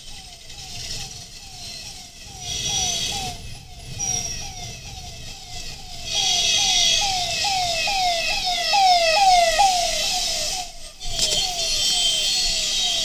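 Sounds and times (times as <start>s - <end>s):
ambulance siren: 1.9s - 11.4s.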